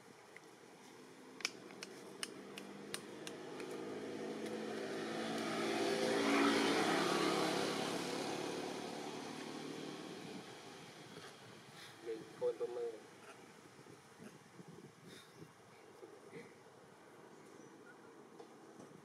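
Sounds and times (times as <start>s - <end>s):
sharp clicks: 1.4s - 3.8s
vehicle engine passing by: 2.0s - 12.2s.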